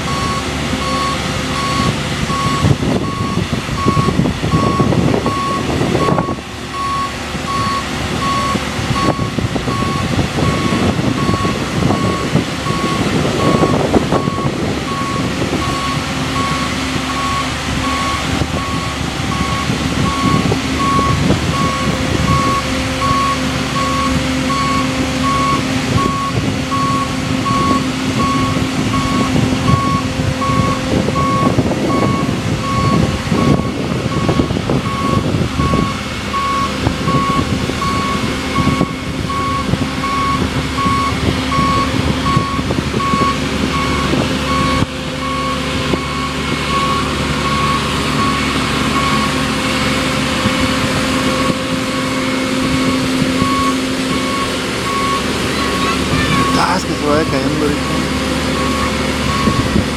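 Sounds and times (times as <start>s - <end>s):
lift engine running: 0.0s - 59.9s
warning beeper short beeps: 53.5s - 59.7s.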